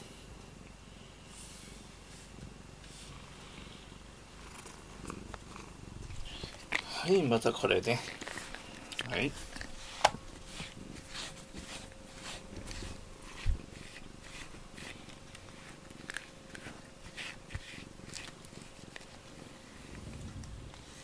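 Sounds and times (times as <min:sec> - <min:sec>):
brush strokes on fur: 0:01.0 - 0:03.9, 0:07.2 - 0:21.0
cat purring: 0:03.0 - 0:06.7, 0:16.6 - 0:21.0
low thump: 0:20.0 - 0:20.8.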